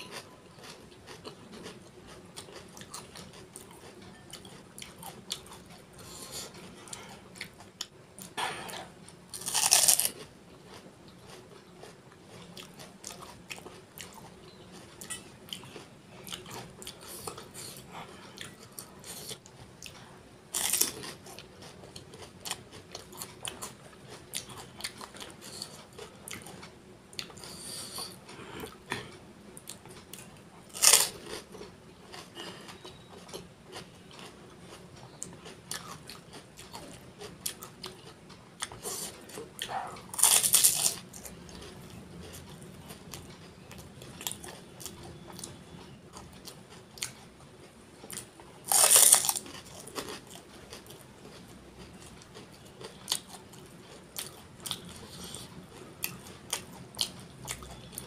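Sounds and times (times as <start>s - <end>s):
crisp puris crunching: 9.3s - 14.8s, 20.5s - 26.7s, 30.2s - 39.4s, 40.0s - 47.3s, 48.0s - 58.0s.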